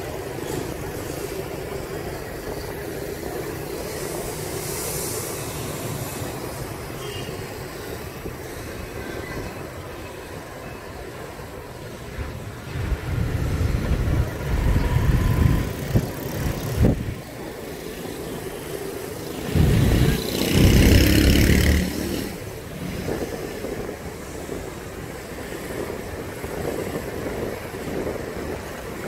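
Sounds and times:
passing vehicles hum: 0.0s - 29.0s
low rumbling: 19.4s - 22.4s.

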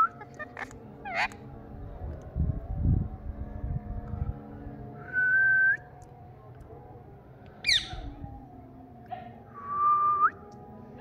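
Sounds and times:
parakeet chirp: 7.7s - 8.0s.

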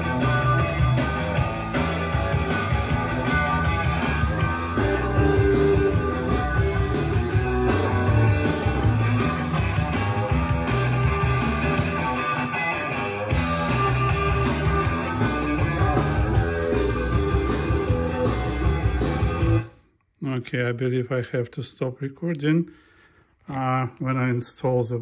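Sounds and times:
rock music with guitar: 0.0s - 19.8s.

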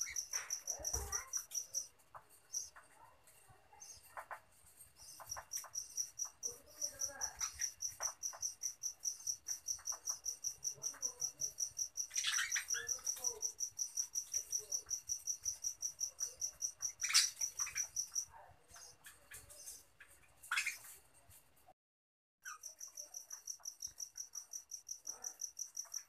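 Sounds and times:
high insect chirping: 0.0s - 2.8s, 5.0s - 18.9s, 22.5s - 26.0s
budgerigars warbling: 12.1s - 13.1s.

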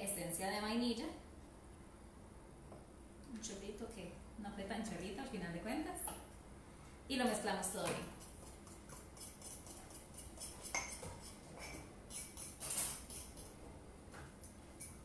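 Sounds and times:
spoon scraping ceramic mug: 8.1s - 13.5s.

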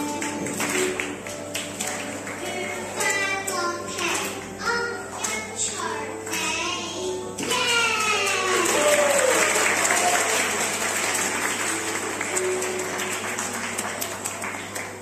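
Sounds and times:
audience applauding: 8.0s - 15.0s.

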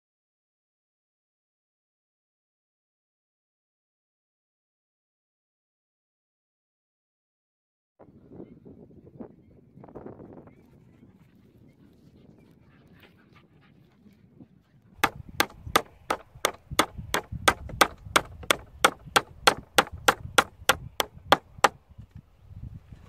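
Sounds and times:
hammer striking wood: 15.0s - 21.8s.

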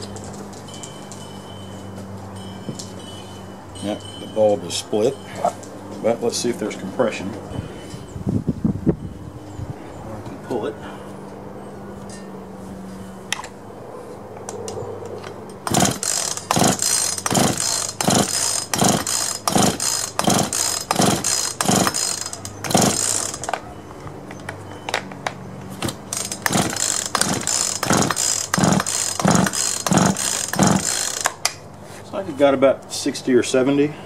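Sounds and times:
engine cranking without firing: 14.5s - 24.0s, 24.7s - 31.7s
chainsaw recoil starter pulls: 15.6s - 23.6s, 25.8s - 31.6s.

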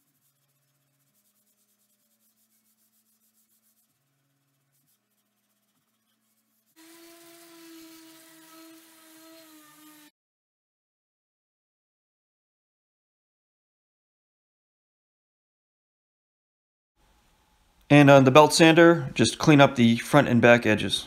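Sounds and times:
sandpaper rubbed by hand on wood: 0.0s - 10.1s
orbit sander humming: 6.8s - 10.1s.

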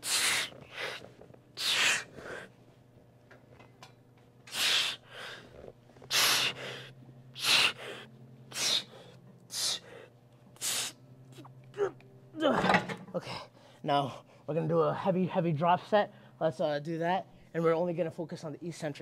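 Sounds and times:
man breathing hard: 0.0s - 2.6s, 4.5s - 11.0s
steady low hum: 0.0s - 19.0s.

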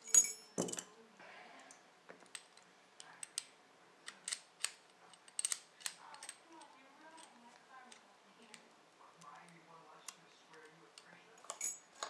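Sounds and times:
bright ringing metal clink: 0.0s - 0.9s, 11.5s - 11.9s
padlock and keys clicking: 2.3s - 7.3s.

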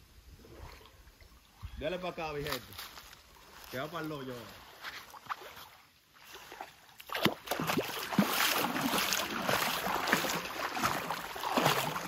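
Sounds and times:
river water splashing: 0.4s - 1.6s, 2.8s - 12.0s
wading steps in water: 2.5s - 12.0s.

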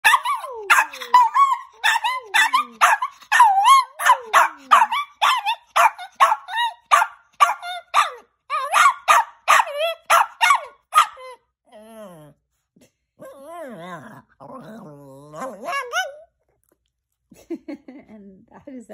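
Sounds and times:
small dog yowling barks: 0.0s - 11.4s, 15.4s - 16.3s.

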